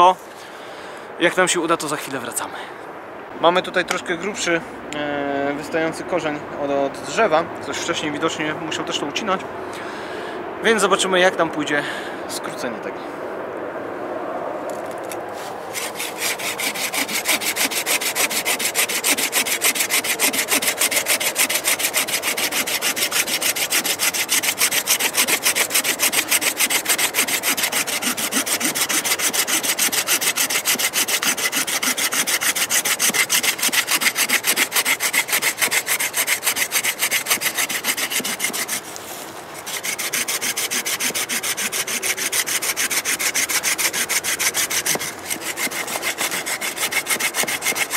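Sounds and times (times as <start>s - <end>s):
pruning saw cutting wood: 14.7s - 47.9s.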